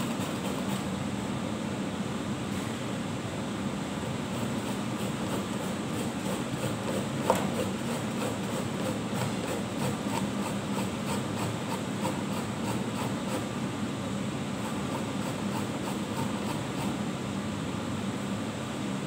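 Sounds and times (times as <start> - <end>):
vegetable rasping on box grater: 0.0 - 0.9, 4.2 - 13.5, 14.6 - 17.0
steady background hum: 0.0 - 19.0.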